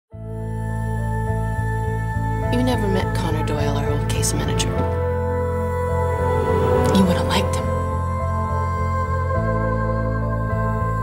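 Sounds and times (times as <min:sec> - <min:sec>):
slow ambient music: 0:00.1 - 0:11.0.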